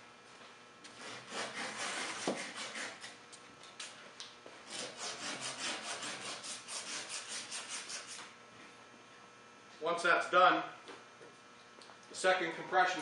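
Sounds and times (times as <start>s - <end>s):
sandpaper scratching copper pipe: 1.0s - 3.2s, 4.7s - 8.3s.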